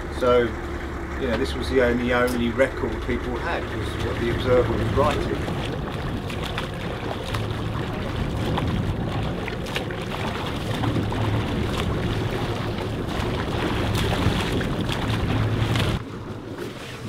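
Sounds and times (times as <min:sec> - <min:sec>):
boat engine drone: 0:00.0 - 0:17.0
sea wash: 0:00.0 - 0:17.0
wind on microphone: 0:04.2 - 0:16.0.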